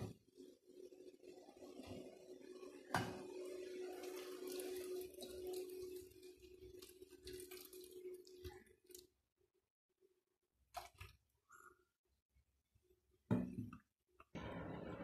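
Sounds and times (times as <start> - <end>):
water pouring into steel bowl: 2.8 - 9.1.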